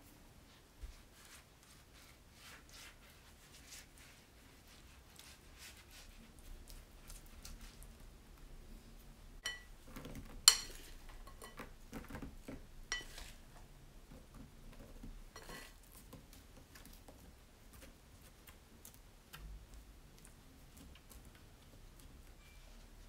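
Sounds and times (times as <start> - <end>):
fingers rustling on dough: 0.0 - 23.0
utensil clinking against dish: 9.4 - 9.7, 10.4 - 11.7.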